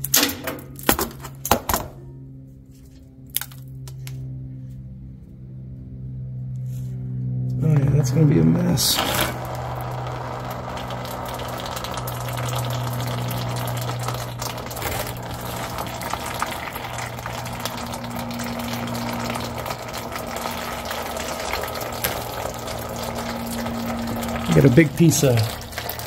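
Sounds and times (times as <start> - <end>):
oil splashing into a pan: 9.3 - 26.0.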